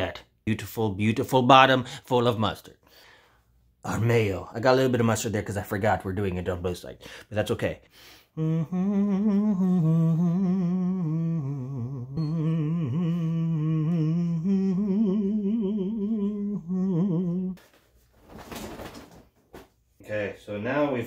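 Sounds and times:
man humming: 0:08.3 - 0:17.6.

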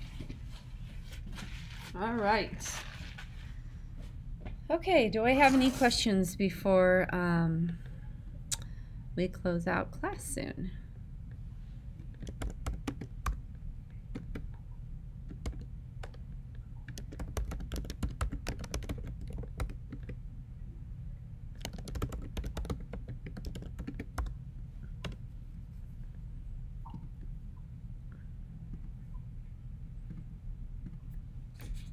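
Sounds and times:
low steady hum: 0:00.0 - 0:31.9.

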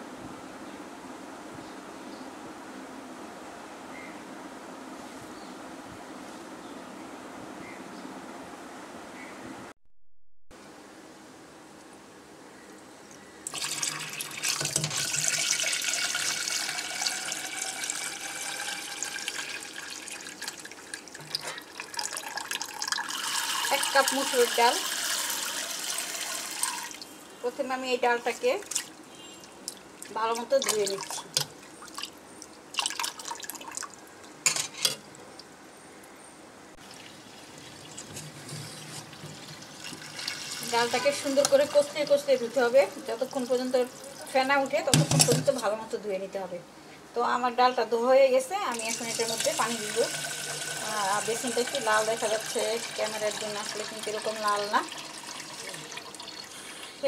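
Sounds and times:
splashes and knocks in a pot: 0:13.5 - 0:15.9, 0:29.7 - 0:32.1, 0:44.9 - 0:45.6
tap water filling metal pot: 0:13.5 - 0:27.0, 0:36.8 - 0:45.6, 0:48.7 - 0:56.6.

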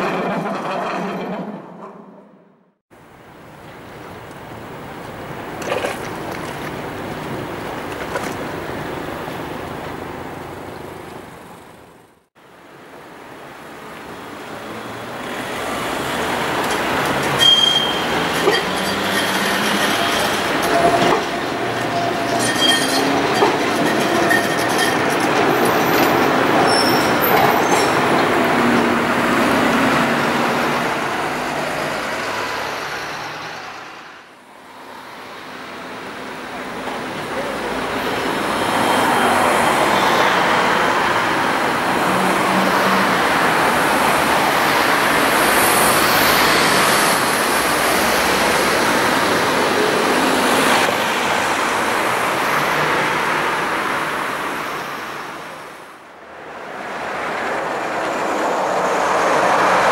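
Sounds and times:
tram pulling away: 0:00.0 - 0:02.4, 0:12.6 - 0:34.2, 0:34.9 - 0:59.9
tram wheel squeal: 0:00.0 - 0:02.4, 0:14.6 - 0:34.0, 0:36.8 - 0:50.9
tram passing: 0:00.0 - 0:59.9
cars passing: 0:13.6 - 0:59.9.

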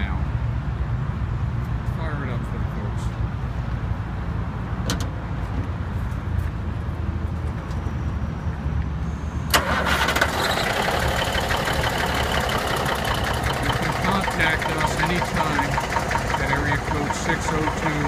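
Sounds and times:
diesel engine starting: 0:09.5 - 0:18.0.

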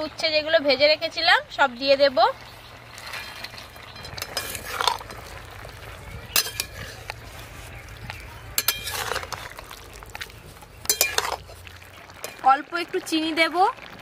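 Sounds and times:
metal spatula scraping a wok: 0:03.0 - 0:05.4, 0:06.3 - 0:12.4.

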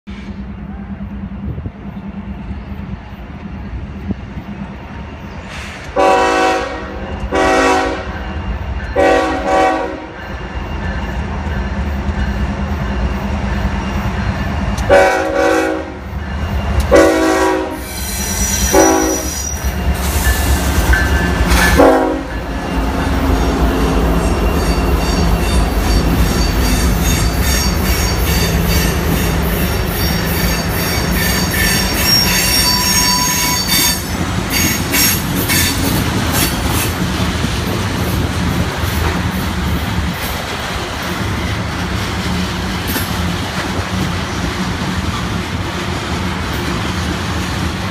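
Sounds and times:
diesel locomotives rumbling: 0:00.0 - 0:47.9
train air horn blasts: 0:05.5 - 0:08.2, 0:09.0 - 0:10.2, 0:14.9 - 0:16.1, 0:16.9 - 0:20.4, 0:21.5 - 0:22.5, 0:24.6 - 0:36.5.

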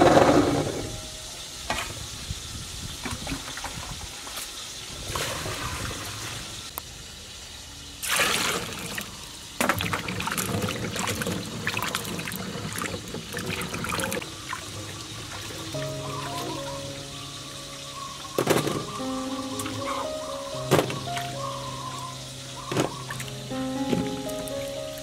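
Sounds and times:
water pouring into a steel bowl: 0:08.0 - 0:19.1.

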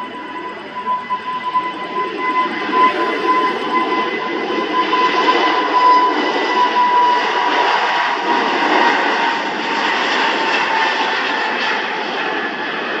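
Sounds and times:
high engine whine: 0:00.0 - 0:13.0
jet engines roaring: 0:00.0 - 0:13.0.

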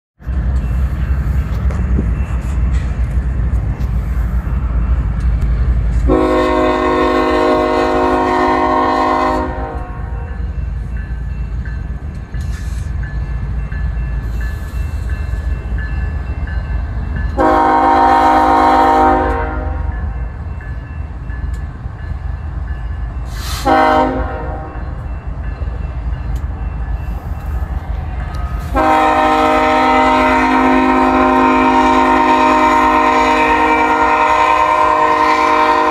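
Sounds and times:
diesel locomotives rumbling: 0:00.2 - 0:35.9
locomotive air horn blasts: 0:06.1 - 0:10.4, 0:17.4 - 0:19.9, 0:23.5 - 0:24.7, 0:28.6 - 0:35.9.

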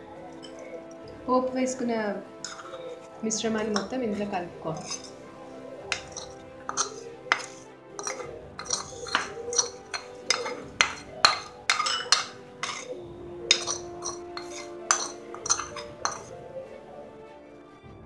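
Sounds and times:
background music: 0:00.0 - 0:18.0
metal spoon clinking on pan: 0:00.3 - 0:00.8, 0:02.4 - 0:05.2, 0:05.8 - 0:16.4.

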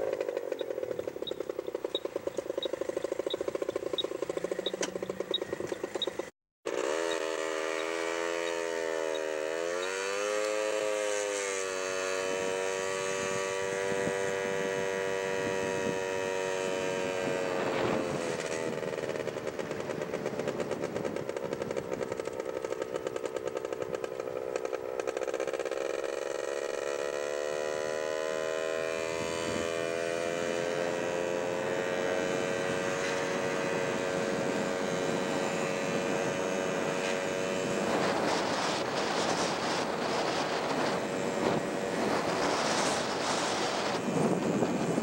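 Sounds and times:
motorcycle engine running: 0:00.0 - 0:45.0
wind on microphone: 0:11.6 - 0:24.2, 0:28.8 - 0:45.0.

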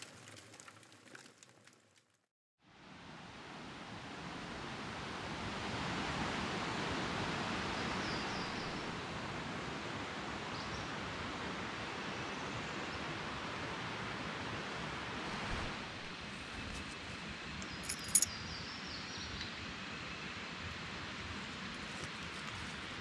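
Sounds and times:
creek water flowing: 0:21.2 - 0:23.0.

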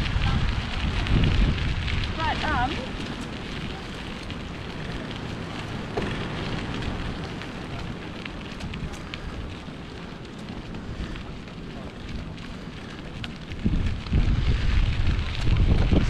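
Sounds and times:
wind buffeting the microphone: 0:00.0 - 0:16.0
faint ticks: 0:04.2 - 0:14.2.

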